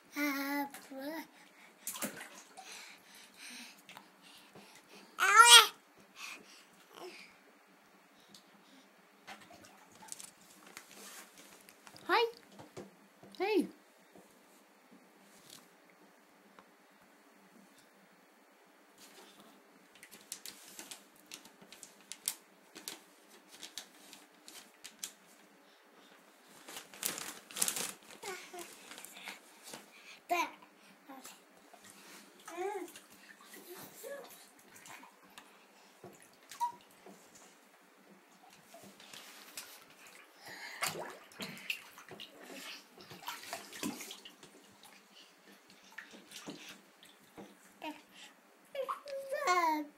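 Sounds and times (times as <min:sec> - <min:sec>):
baby splashing water in bathtub: 0:01.8 - 0:03.0, 0:38.4 - 0:48.0
quiet clicks and taps in bathtub: 0:07.8 - 0:08.5.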